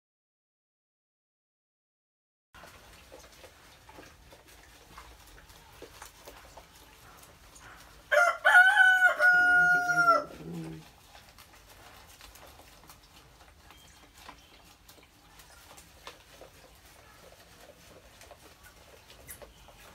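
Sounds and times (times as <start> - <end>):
faint ticks and rustles: 2.6 - 9.2, 10.5 - 19.9
rooster crowing: 8.1 - 10.5.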